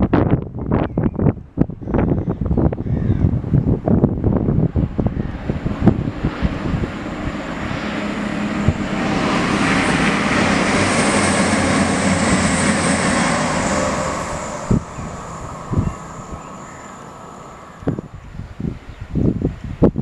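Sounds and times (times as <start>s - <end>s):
train passing: 4.1s - 19.6s.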